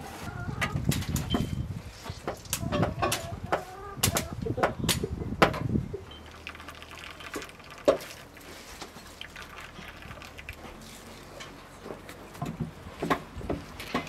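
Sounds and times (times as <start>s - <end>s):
juice dripping into a bowl: 6.2s - 8.5s, 9.1s - 10.8s.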